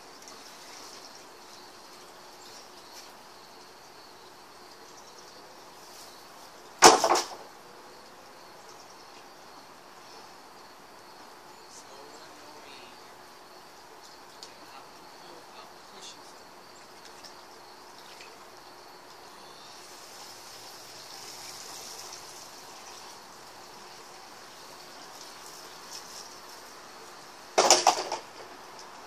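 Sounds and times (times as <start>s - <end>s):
faint insect chirping: 0.0s - 29.0s
loud knock with clatter: 6.8s - 7.4s, 27.6s - 28.3s.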